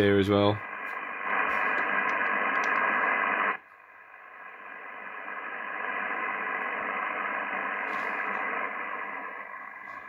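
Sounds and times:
radio receiver static hiss: 0:00.0 - 0:10.0.

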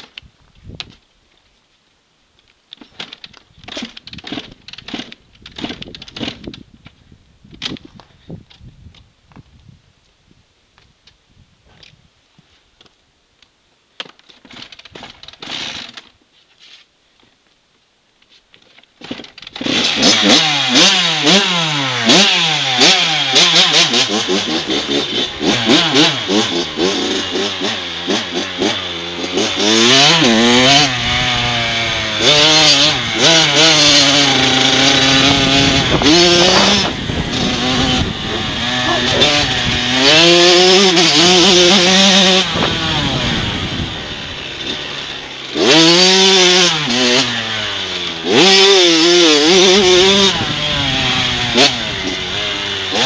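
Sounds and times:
dirt bike engine revving: 0:19.5 - 0:53.0.

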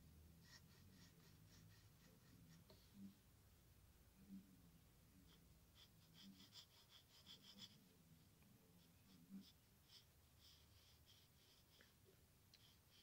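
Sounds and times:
pencil scratching on paper: 0:00.4 - 0:02.7, 0:05.2 - 0:08.0, 0:08.8 - 0:12.0.

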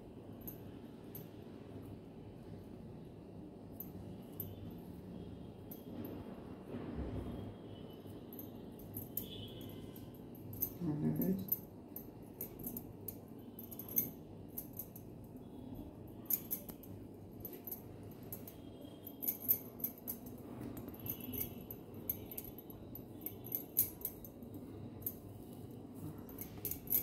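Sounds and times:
low steady hum: 0:00.0 - 0:27.0
light clicks and clinks: 0:08.2 - 0:27.0.

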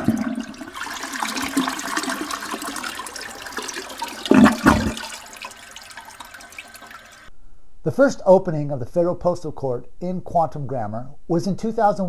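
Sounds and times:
toilet flushing: 0:00.0 - 0:07.3.

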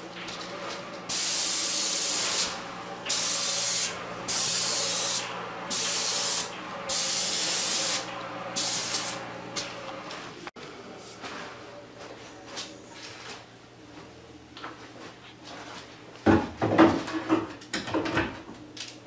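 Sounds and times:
paint spray gun hissing: 0:01.1 - 0:09.2.

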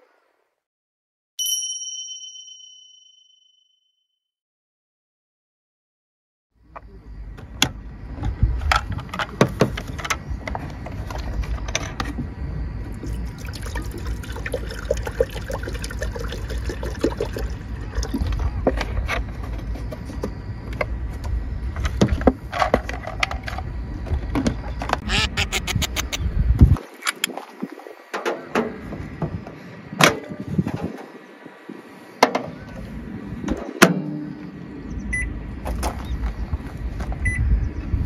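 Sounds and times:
water pouring into electric kettle: 0:13.4 - 0:18.1.

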